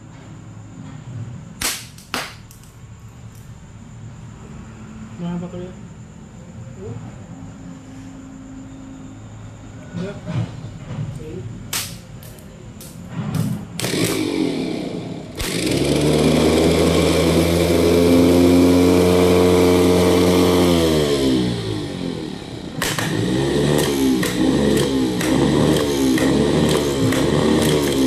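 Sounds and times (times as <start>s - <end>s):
starter motor whining: 13.7s - 28.0s.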